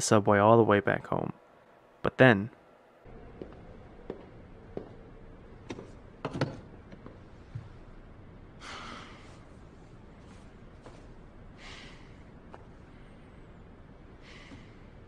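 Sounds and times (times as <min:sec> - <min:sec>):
soft breaths: 0:07.2 - 0:15.0.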